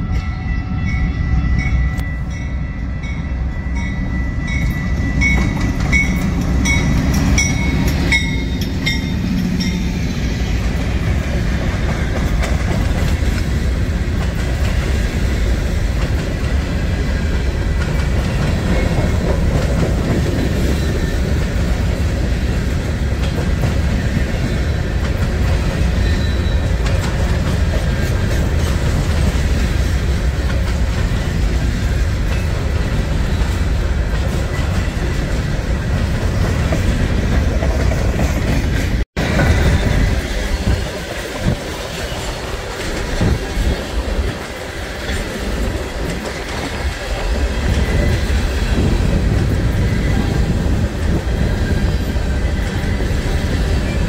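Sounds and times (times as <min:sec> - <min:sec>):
locomotive bell ringing: 0:00.0 - 0:10.8.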